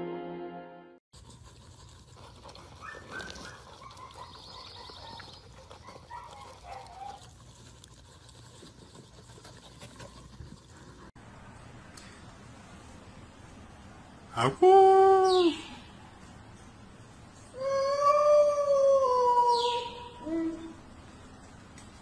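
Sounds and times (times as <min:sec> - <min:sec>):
puppies chewing: 0:01.2 - 0:11.2.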